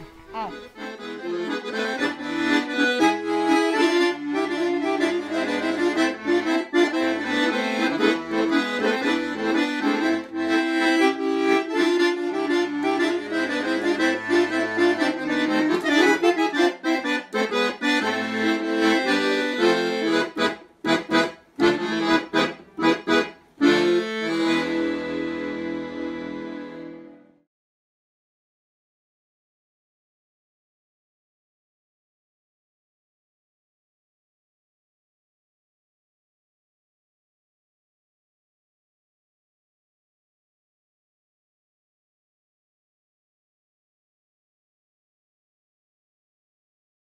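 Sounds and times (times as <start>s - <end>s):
accordion music: 0.0s - 27.5s.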